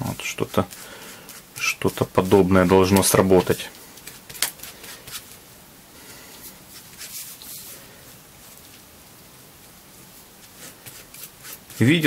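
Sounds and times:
spatula scraping leather: 0:10.4 - 0:12.0.

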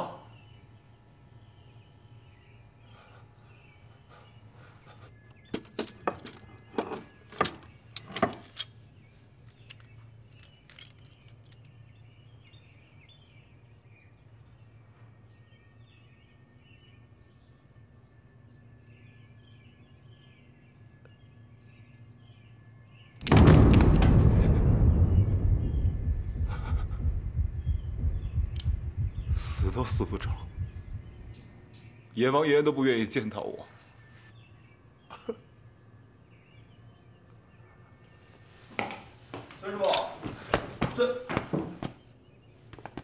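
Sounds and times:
faint bird chirps: 0:00.0 - 0:23.2, 0:25.0 - 0:38.7
low hum: 0:07.9 - 0:32.4.

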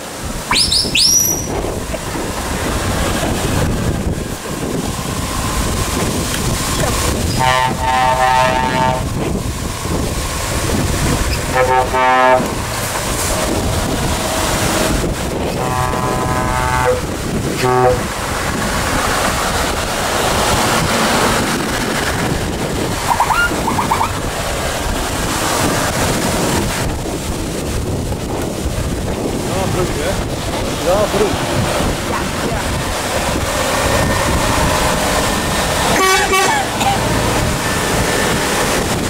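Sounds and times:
trucks passing: 0:00.0 - 0:39.0
wind on microphone: 0:00.0 - 0:39.0
truck horns blowing: 0:00.5 - 0:01.6, 0:07.2 - 0:09.3, 0:11.3 - 0:12.9, 0:13.6 - 0:18.6, 0:35.8 - 0:38.1.

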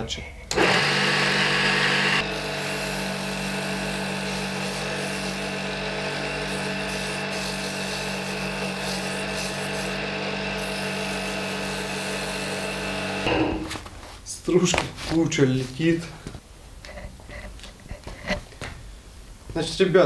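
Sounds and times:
electric motor humming: 0:00.5 - 0:13.3
chisel scraping spinning wood: 0:01.9 - 0:13.3.

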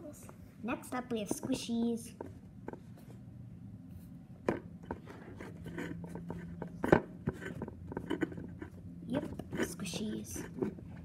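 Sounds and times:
toys tapping on plastic tray: 0:01.1 - 0:02.8.

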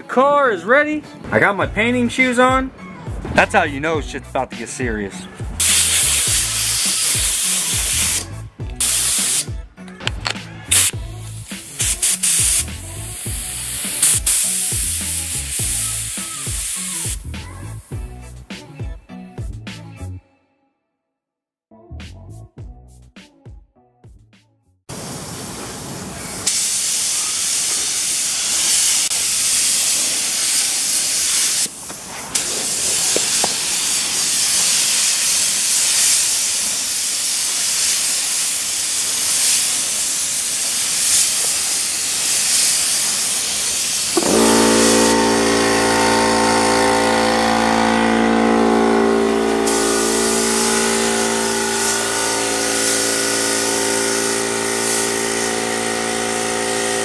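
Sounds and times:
paint spray gun hissing: 0:05.6 - 0:09.5, 0:10.7 - 0:17.8, 0:26.4 - 0:57.0
machine hum with even tones: 0:44.2 - 0:57.0.

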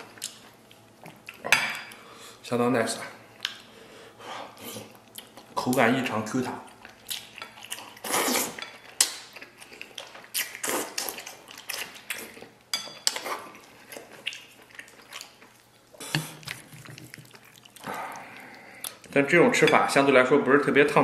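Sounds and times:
wet chewing and slurping: 0:06.7 - 0:19.1.

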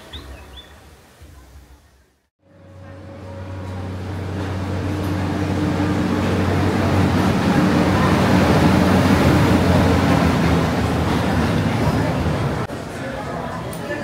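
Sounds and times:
broad rush of noise: 0:00.0 - 0:14.0
low engine hum: 0:02.4 - 0:12.7.

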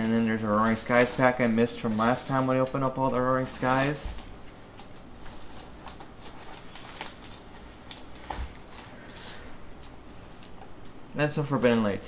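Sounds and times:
plastic wrap crinkling: 0:00.0 - 0:12.0.

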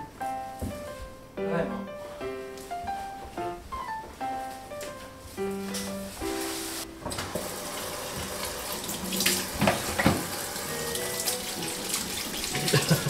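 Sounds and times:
soft background music: 0:00.0 - 0:13.0
hands washing under water: 0:07.1 - 0:13.0
tap running into sink: 0:07.1 - 0:13.0.

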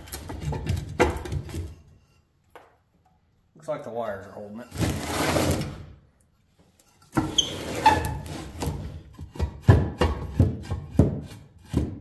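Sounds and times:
metal frame scraping on workbench: 0:04.6 - 0:05.9, 0:06.9 - 0:09.0.

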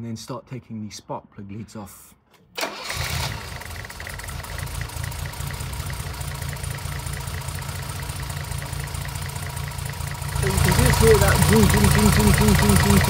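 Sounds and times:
car engine idling with misfire: 0:02.6 - 0:13.0.

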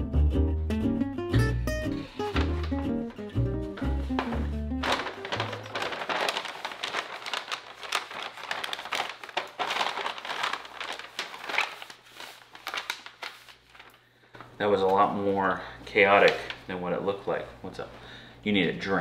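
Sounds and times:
crinkling and crackling: 0:02.0 - 0:15.1, 0:15.9 - 0:16.7.

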